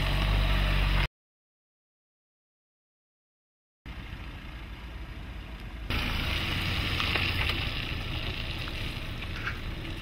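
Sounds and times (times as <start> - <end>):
low engine rumble: 3.9 - 10.0
tyres rushing over rough ground: 5.9 - 10.0.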